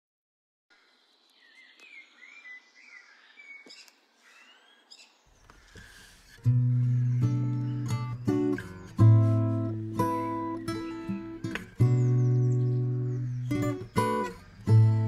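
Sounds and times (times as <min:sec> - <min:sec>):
faint high chirps: 0:00.7 - 0:15.0
acoustic guitar music: 0:06.0 - 0:15.0.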